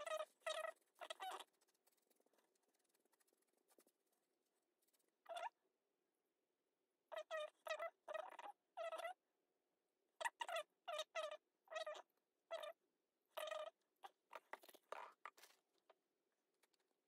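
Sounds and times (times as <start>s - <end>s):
faint high-pitched squeaks: 0.0s - 4.1s, 4.9s - 5.6s.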